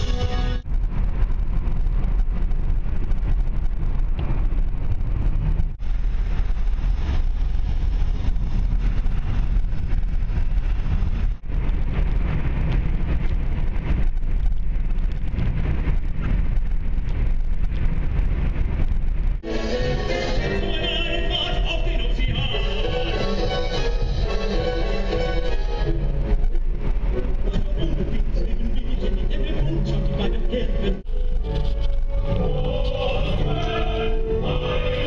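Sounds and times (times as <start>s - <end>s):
car road and engine rumble: 0.0s - 35.0s.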